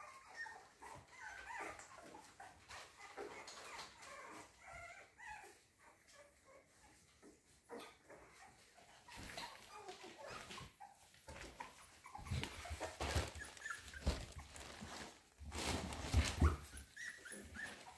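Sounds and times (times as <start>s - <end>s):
puppies whimpering and squeaking: 0.0s - 17.9s
rustling and bumping: 11.3s - 17.0s.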